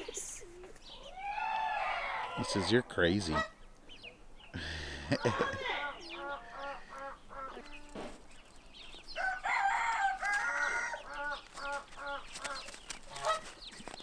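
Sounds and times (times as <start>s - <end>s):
chickens clucking: 2.2s - 8.4s, 9.0s - 14.0s
rooster crowing: 9.2s - 11.1s.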